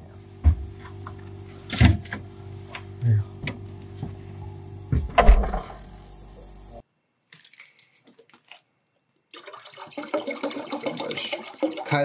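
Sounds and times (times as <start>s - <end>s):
dull thump: 4.9s - 5.8s
water pouring into pot: 9.3s - 12.0s.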